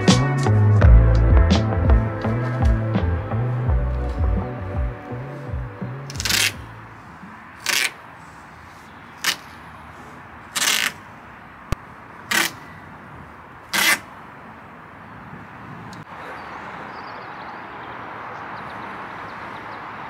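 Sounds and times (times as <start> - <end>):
masking tape ripping: 6.0 - 6.7, 7.6 - 8.0, 9.2 - 9.5, 10.5 - 11.0, 12.3 - 12.6, 13.7 - 14.1.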